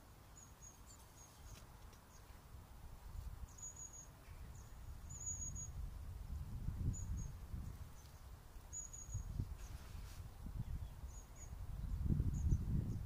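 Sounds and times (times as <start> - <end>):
wind rumble on microphone: 4.3 - 13.0.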